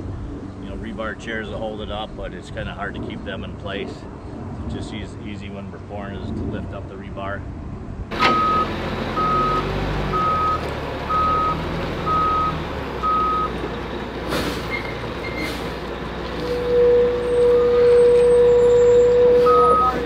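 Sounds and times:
diesel engine rumble: 0:00.0 - 0:20.0
reversing alarm beeping: 0:08.2 - 0:13.6, 0:16.5 - 0:20.0
loud steady tone: 0:16.4 - 0:20.0.

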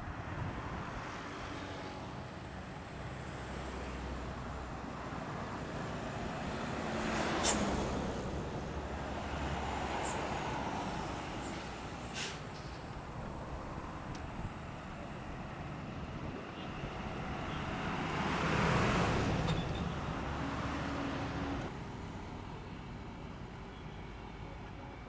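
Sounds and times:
highway traffic rumble: 0:00.0 - 0:25.0
short hiss: 0:07.4 - 0:07.8, 0:12.1 - 0:12.8.

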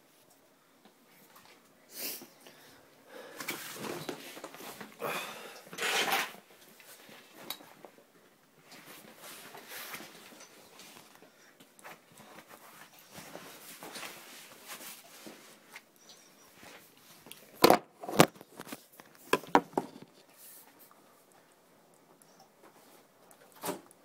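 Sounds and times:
sharp knocks and clunks: 0:19.3 - 0:20.0.

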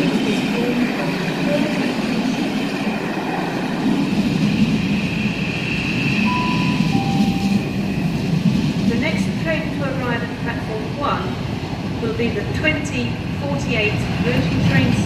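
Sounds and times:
train wheels rumbling on rails: 0:00.0 - 0:15.0
high ringing note: 0:06.3 - 0:08.0.

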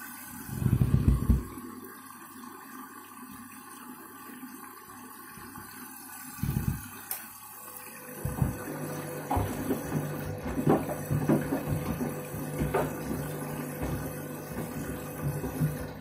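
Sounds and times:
washing machine drum turning: 0:00.5 - 0:01.6, 0:08.1 - 0:16.0
water sloshing: 0:08.1 - 0:16.0.

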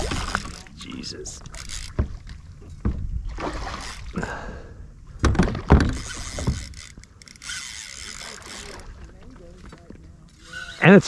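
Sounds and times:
fishing reel whirring: 0:00.0 - 0:02.0, 0:03.8 - 0:04.1, 0:05.9 - 0:11.0.

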